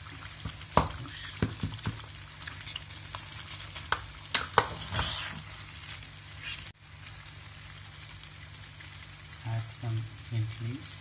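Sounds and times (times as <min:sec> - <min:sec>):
rice sizzling: 0:00.0 - 0:11.0
spoon scraping metal pot: 0:04.6 - 0:05.4.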